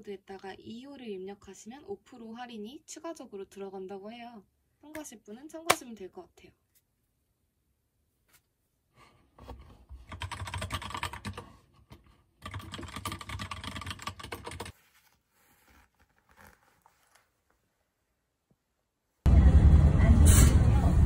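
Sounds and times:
typing on computer keyboard: 10.0 - 11.4, 12.4 - 14.7.

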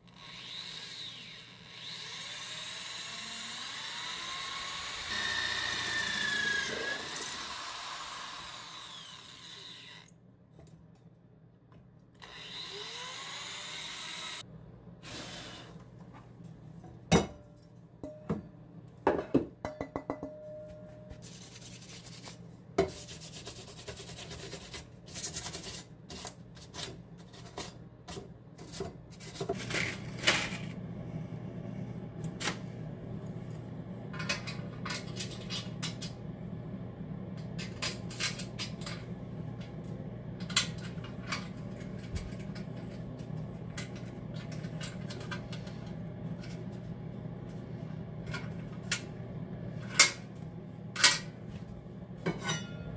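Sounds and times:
rotary tool whining: 0.0 - 10.1, 12.2 - 14.4.

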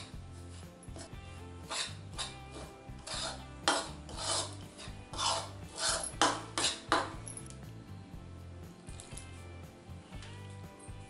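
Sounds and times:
spoon scraping in bowl: 0.0 - 7.1.

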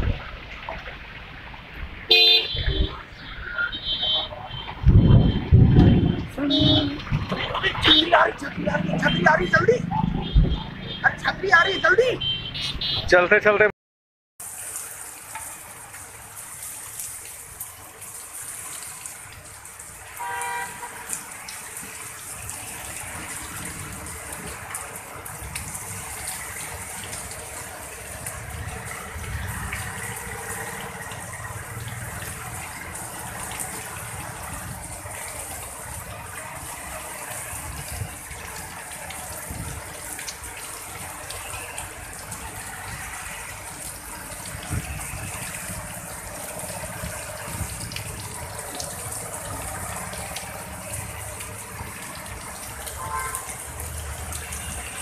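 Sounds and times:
heavy rain pouring: 0.0 - 12.3, 14.4 - 55.0
vehicle horn honking: 2.1 - 3.0, 3.6 - 5.4, 6.0 - 6.9, 7.7 - 8.3, 10.2 - 13.2, 20.2 - 21.0, 53.0 - 53.5.

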